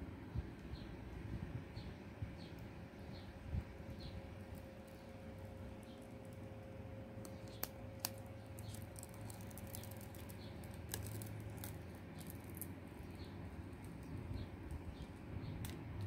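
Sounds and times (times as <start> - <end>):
plastic film peeling crackle: 4.3 - 16.0.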